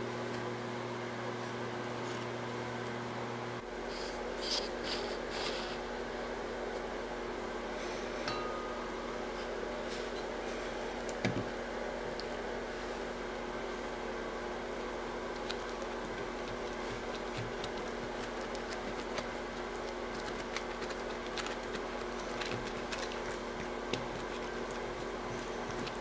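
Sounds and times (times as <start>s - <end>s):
electrical hum: 0.0s - 26.0s
pastry brush dabbing: 15.2s - 26.0s.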